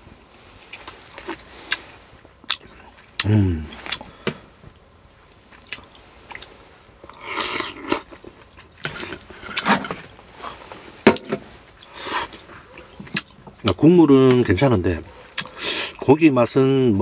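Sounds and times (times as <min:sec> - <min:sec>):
person chewing: 0:00.6 - 0:09.6, 0:11.7 - 0:13.8, 0:15.2 - 0:16.0.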